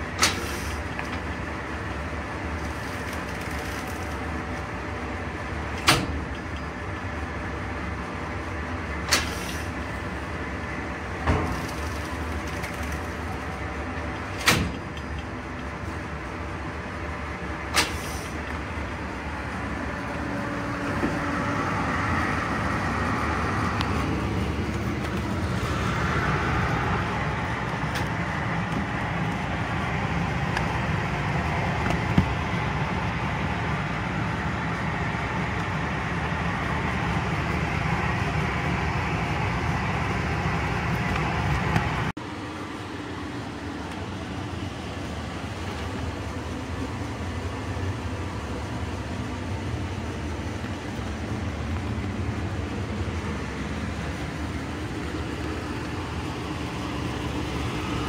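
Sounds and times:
heat shrink tunnel humming: 0.0s - 58.0s.

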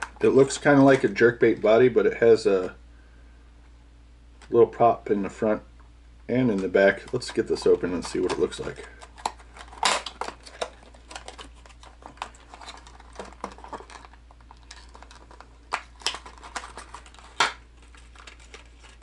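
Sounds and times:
plastic package clicks and crinkles: 6.5s - 19.0s
plastic snapping: 8.0s - 17.6s.

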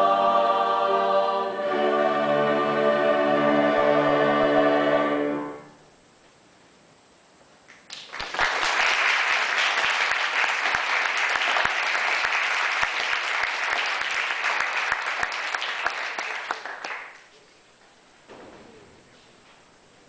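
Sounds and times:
audience applauding: 7.8s - 17.4s.

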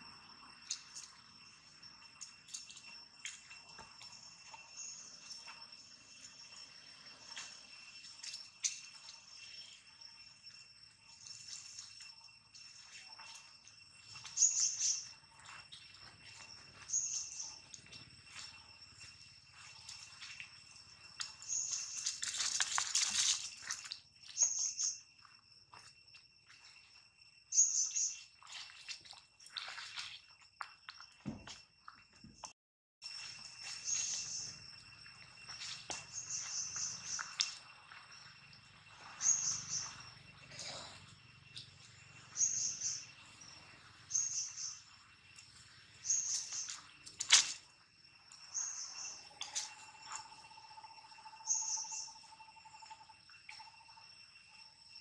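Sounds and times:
high insect drone: 0.0s - 32.3s, 33.0s - 55.0s
bird chirping: 11.1s - 18.4s, 36.0s - 37.6s, 39.0s - 40.9s, 41.5s - 45.0s, 48.4s - 53.0s.

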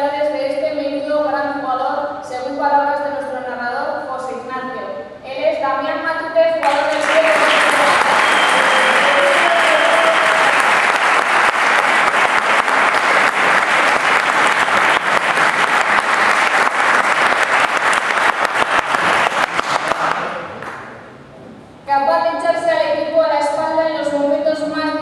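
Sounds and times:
audience applauding: 6.6s - 20.9s.

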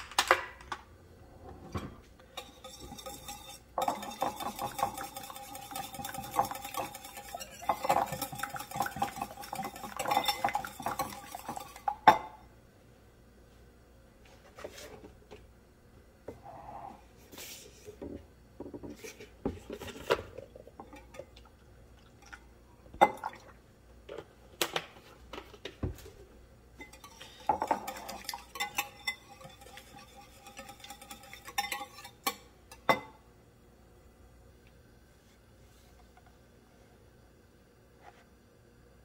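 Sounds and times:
whisk clinking against ceramic bowl: 2.4s - 12.4s, 26.8s - 33.2s.

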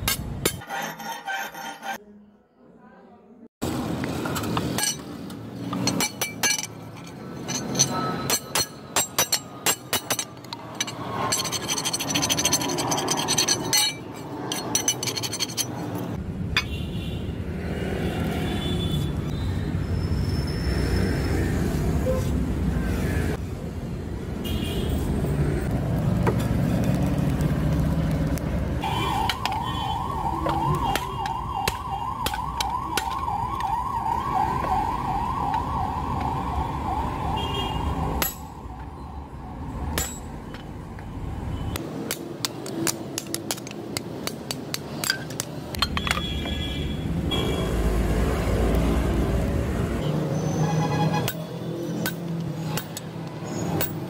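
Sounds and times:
hammer striking chisel on metal: 0.0s - 2.0s, 4.4s - 15.8s, 30.4s - 33.7s, 38.2s - 38.6s, 39.9s - 40.7s, 41.8s - 46.6s, 51.2s - 54.0s
siren wailing: 28.9s - 39.5s.

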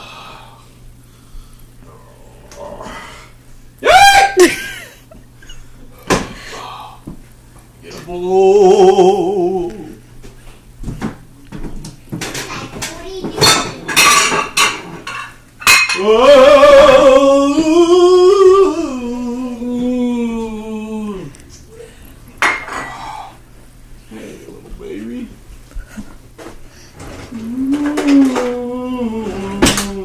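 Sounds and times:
man singing wordlessly: 7.8s - 10.0s, 16.0s - 21.4s, 27.3s - 30.0s
dishes and cutlery clinking: 11.6s - 16.1s.

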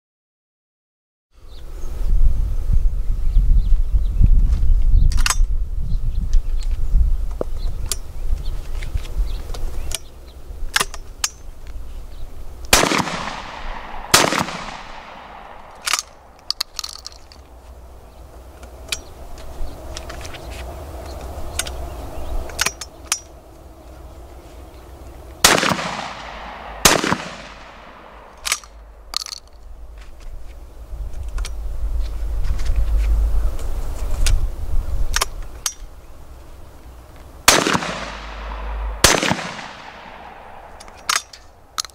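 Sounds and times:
shotgun shots with echo: 12.7s - 16.3s, 25.4s - 28.6s, 37.5s - 41.0s
metal clicks of gun breech: 15.7s - 17.5s, 28.3s - 29.6s.

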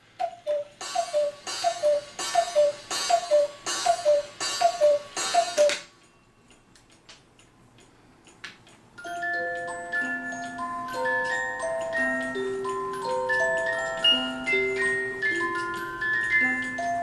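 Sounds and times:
cuckoo clock calls: 0.0s - 5.9s
faint clock ticking: 0.0s - 17.0s.

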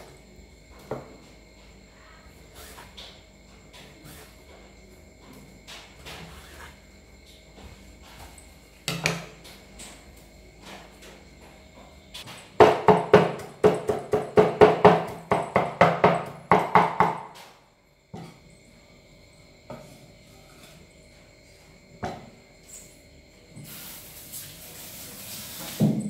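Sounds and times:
cleaver chopping on wooden board: 12.6s - 17.3s.

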